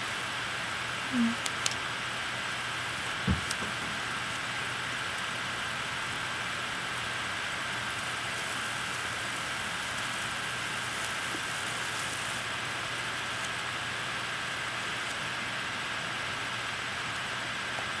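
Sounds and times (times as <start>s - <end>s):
faint constant hum: 0.0s - 18.0s
steady background hiss: 0.0s - 18.0s
soft thump: 3.3s - 4.0s.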